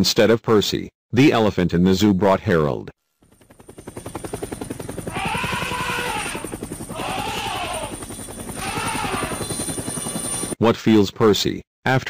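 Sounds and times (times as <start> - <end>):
cartoon helicopter rotor chop: 3.2 - 10.6
rising and falling pitched calls: 4.8 - 10.4.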